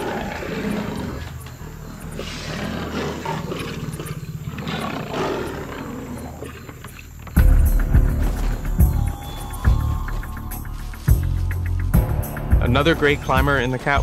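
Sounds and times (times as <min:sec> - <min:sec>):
big cats growling and snarling: 0:00.0 - 0:08.8.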